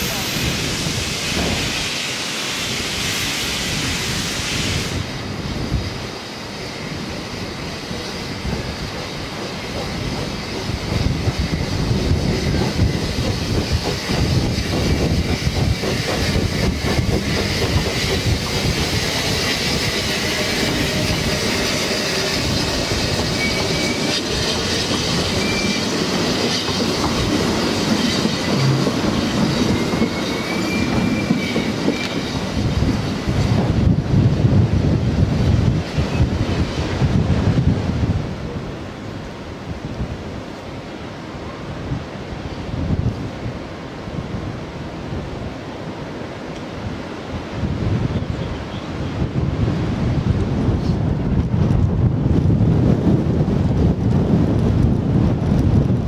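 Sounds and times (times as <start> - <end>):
hiss of steam: 0.0 - 34.0
train wheels clattering over rail joints: 7.9 - 33.9.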